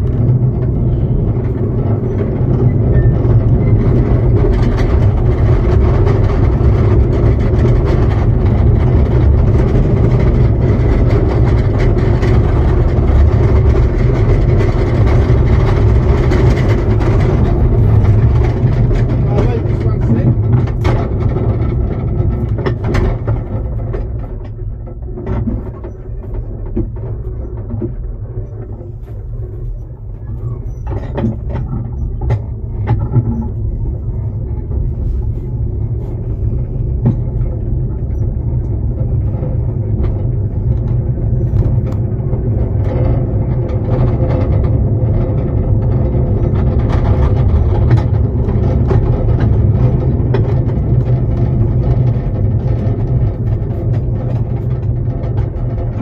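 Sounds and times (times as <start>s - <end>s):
miniature train rumbling on track: 0.0s - 56.0s
wheels and couplings clicking: 0.0s - 56.0s.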